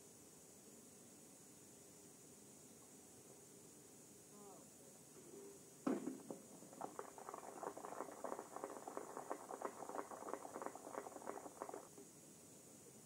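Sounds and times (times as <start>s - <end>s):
shotgun shot: 5.9s - 6.4s
crowd clapping: 6.4s - 12.0s.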